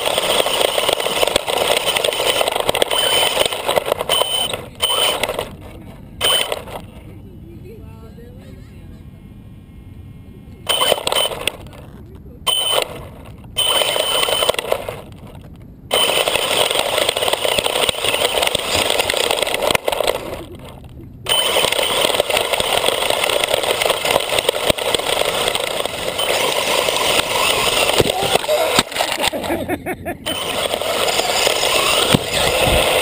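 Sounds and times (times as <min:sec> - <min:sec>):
rc car motor and tyres on wood chips: 0:00.0 - 0:07.1, 0:10.7 - 0:33.0.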